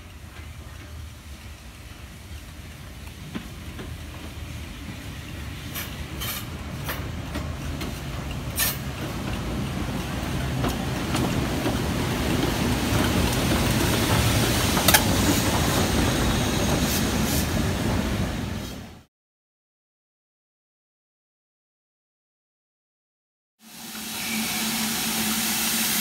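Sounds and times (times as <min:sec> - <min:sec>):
train wheels rumbling on rails: 0:00.0 - 0:19.1.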